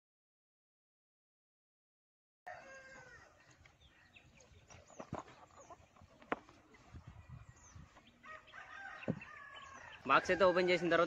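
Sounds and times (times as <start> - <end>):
faint chickens calling: 2.5 - 11.0
small birds chirping: 2.8 - 10.4.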